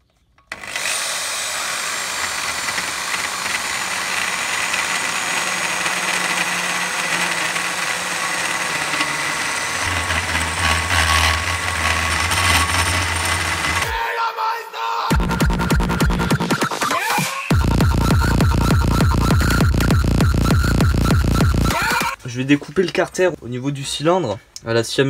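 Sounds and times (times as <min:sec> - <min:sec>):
drill whine cutting metal: 0:00.5 - 0:14.0, 0:17.5 - 0:22.2
deeper hum: 0:09.7 - 0:13.9, 0:17.5 - 0:21.8.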